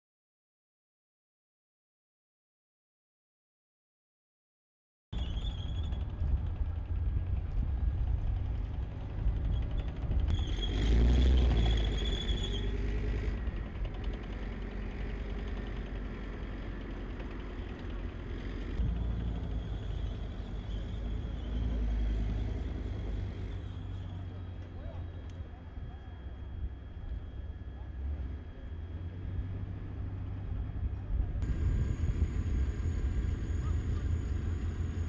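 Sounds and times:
high squeal of tracks: 0:05.2 - 0:06.4, 0:09.4 - 0:13.4, 0:18.3 - 0:25.2
deep engine rumble: 0:05.2 - 0:35.0.

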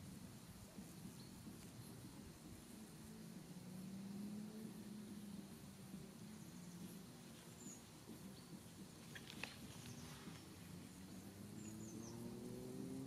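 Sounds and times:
low hum: 0:00.0 - 0:13.0
bird chirps: 0:00.7 - 0:02.4, 0:06.1 - 0:13.0.

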